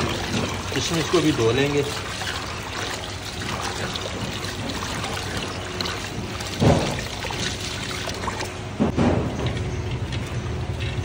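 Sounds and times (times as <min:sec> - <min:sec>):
water running and trickling: 0:00.0 - 0:08.7.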